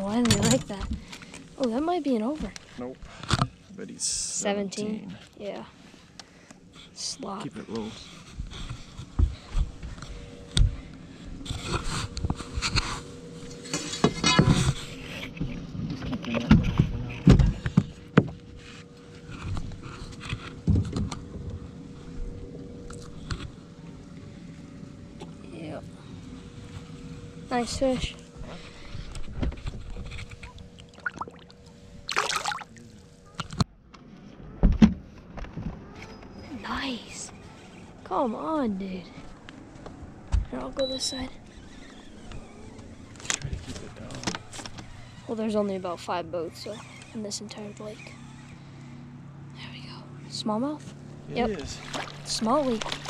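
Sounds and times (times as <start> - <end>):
faint steady hum: 0.0 - 53.0
water splashing: 30.4 - 32.8, 51.6 - 53.0.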